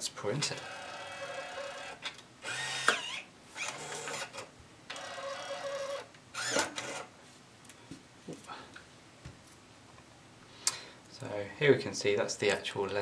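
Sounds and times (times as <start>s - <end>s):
label printer motor whirring: 0.6s - 7.1s.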